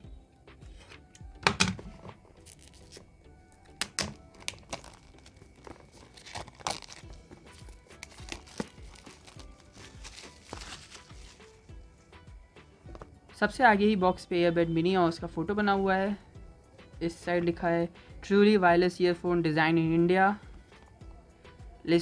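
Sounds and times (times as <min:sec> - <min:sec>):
plastic film crinkling and tearing: 0:02.4 - 0:03.0, 0:03.8 - 0:11.6
sharp plastic crackles: 0:03.7 - 0:11.4.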